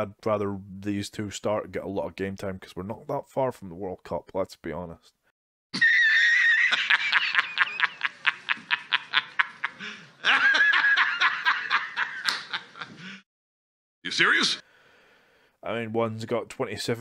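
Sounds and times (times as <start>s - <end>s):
man laughing hysterically: 5.8s - 13.2s.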